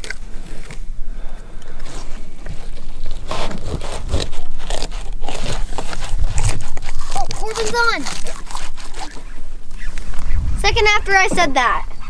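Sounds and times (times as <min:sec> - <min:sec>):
knife crunching through fish: 0:02.0 - 0:09.4
knife scraping: 0:02.6 - 0:10.1.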